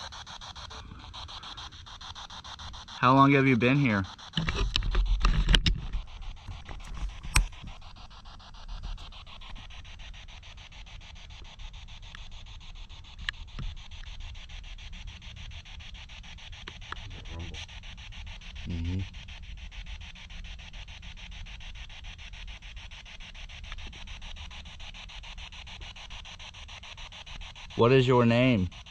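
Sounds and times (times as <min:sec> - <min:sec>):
chopped radio static hiss: 0:00.0 - 0:28.9
sharp clicks: 0:03.7 - 0:10.0, 0:11.3 - 0:14.4.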